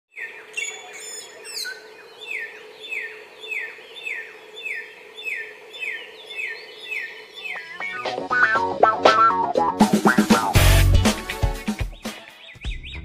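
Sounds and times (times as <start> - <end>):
bird whistling song: 0.1 - 8.1, 12.0 - 13.0.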